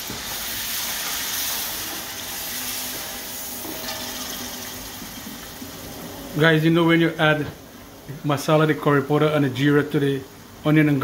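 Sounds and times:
curry paste sizzling in hot oil: 0:00.0 - 0:06.0.

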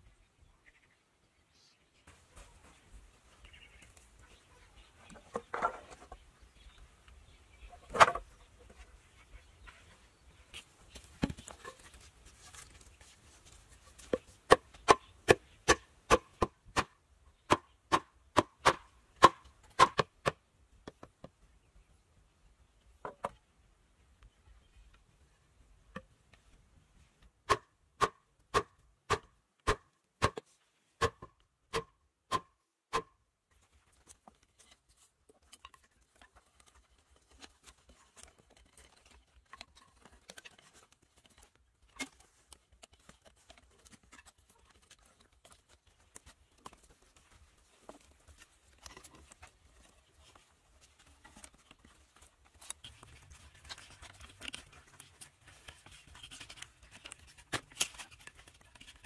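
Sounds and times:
cord rustling and scratching: 0:07.9 - 0:14.4, 0:33.5 - 0:59.0.

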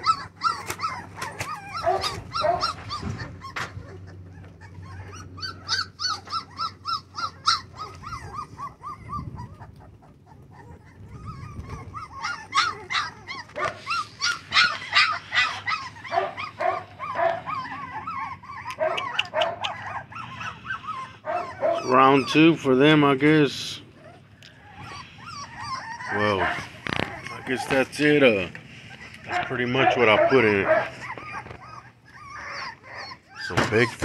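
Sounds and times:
puppies whining and yipping: 0:00.0 - 0:34.0.

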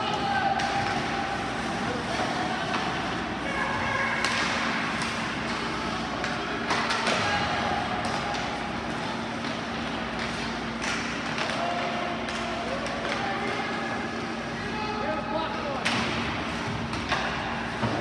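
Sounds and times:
distant crowd voices: 0:00.0 - 0:18.0
steady arena hum: 0:00.0 - 0:18.0
hockey sticks and puck knocking: 0:04.2 - 0:13.6, 0:15.8 - 0:18.0.

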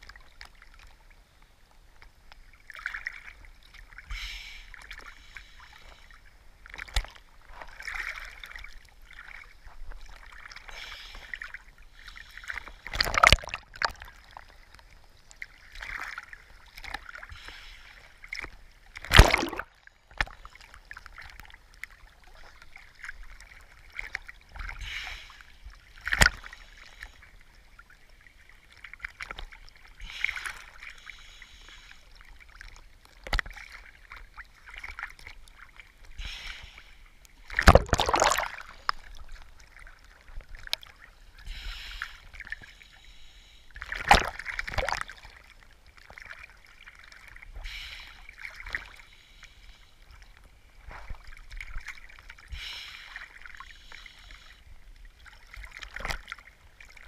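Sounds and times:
water lapping and sloshing: 0:00.0 - 0:57.0
waves splashing against camera: 0:06.7 - 0:14.5, 0:15.7 - 0:20.4, 0:36.0 - 0:45.5.

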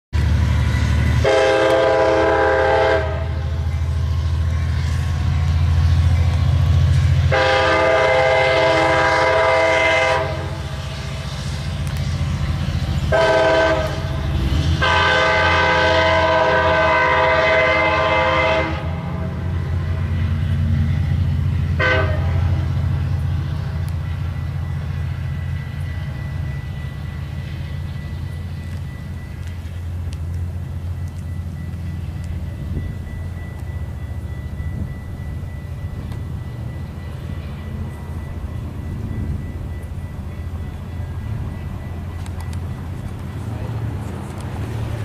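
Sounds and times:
diesel engine drone: 0:00.2 - 0:45.0
locomotive air horn: 0:00.9 - 0:03.5, 0:07.3 - 0:11.5, 0:13.0 - 0:19.4, 0:21.8 - 0:22.6.

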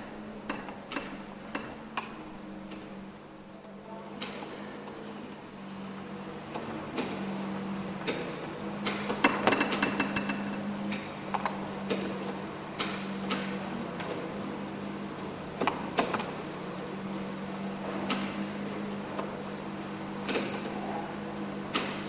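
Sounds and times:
mechanism clicks and knocks: 0:00.0 - 0:02.9, 0:08.0 - 0:14.3, 0:15.6 - 0:16.5, 0:20.2 - 0:20.8, 0:21.7 - 0:22.0
low motor hum: 0:00.0 - 0:04.2.

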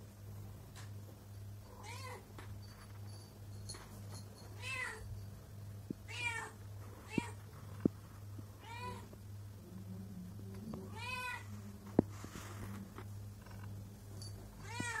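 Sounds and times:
steady low hum: 0:00.0 - 0:15.0
cat meowing: 0:14.6 - 0:15.0.

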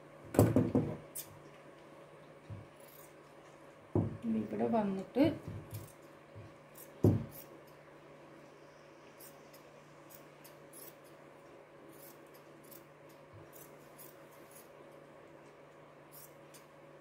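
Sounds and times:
scissors snipping fabric: 0:05.7 - 0:06.0.

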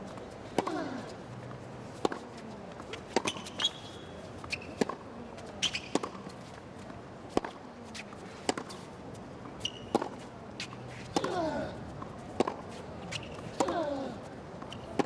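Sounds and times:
background murmur: 0:00.0 - 0:15.0
racket hitting tennis ball: 0:00.5 - 0:01.1, 0:02.0 - 0:02.2, 0:02.8 - 0:03.9, 0:04.6 - 0:05.0, 0:05.6 - 0:06.2, 0:07.3 - 0:08.8, 0:09.6 - 0:14.0
shoe squeaks: 0:03.0 - 0:06.4, 0:09.6 - 0:11.1, 0:12.7 - 0:13.5.

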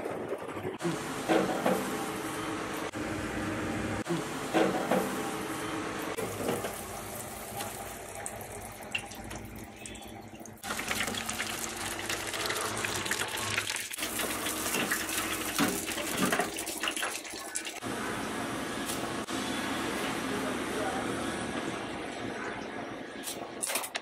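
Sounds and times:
hot oil sizzling: 0:10.6 - 0:17.8.

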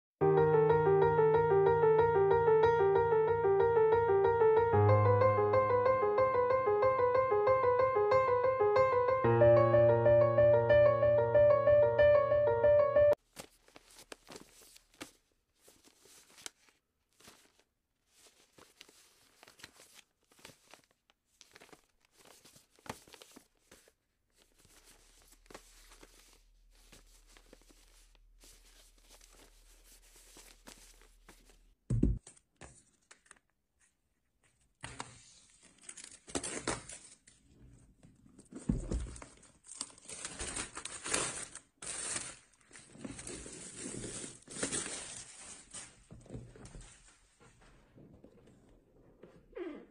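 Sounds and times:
cardboard and paper rustling: 0:13.2 - 0:48.6.

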